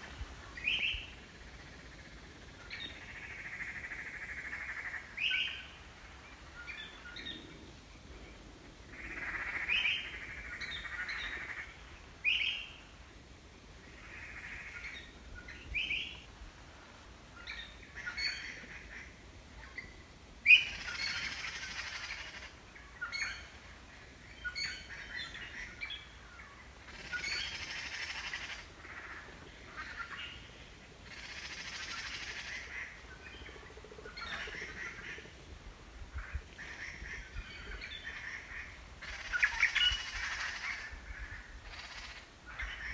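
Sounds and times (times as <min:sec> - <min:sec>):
small birds chirping: 0:00.5 - 0:12.9.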